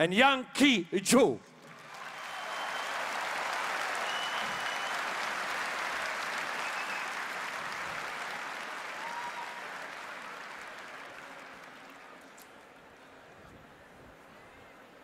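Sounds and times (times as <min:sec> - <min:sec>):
audience applauding: 0:01.6 - 0:12.3.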